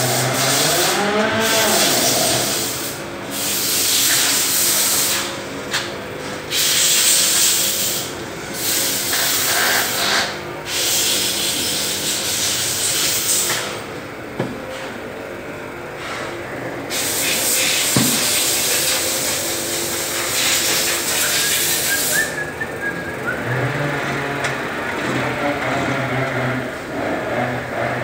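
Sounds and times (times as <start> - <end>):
loud hiss: 6.5 - 13.8, 16.9 - 23.3
transmission gears whirring: 16.0 - 28.0.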